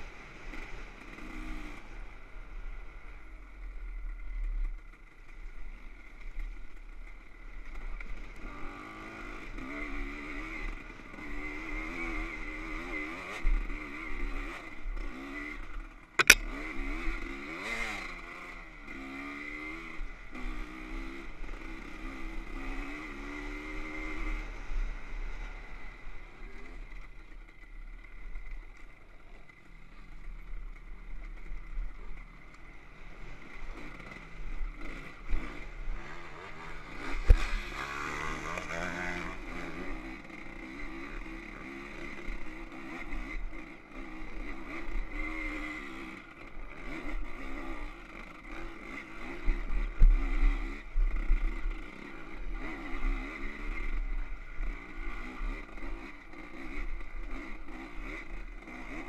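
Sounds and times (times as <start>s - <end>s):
dirt bike engine revving: 7.2s - 26.9s, 31.5s - 59.0s.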